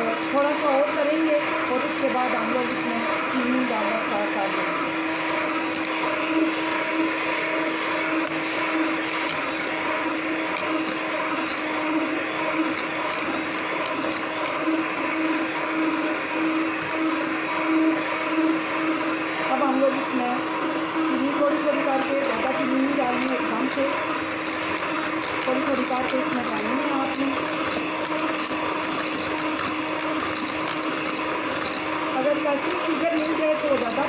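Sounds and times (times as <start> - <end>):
electric hand mixer whisking: 0.0 - 34.0.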